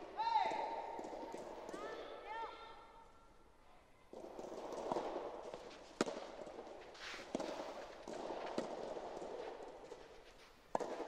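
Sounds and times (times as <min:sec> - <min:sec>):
racket hitting tennis ball: 0:04.2 - 0:10.0, 0:10.6 - 0:11.0.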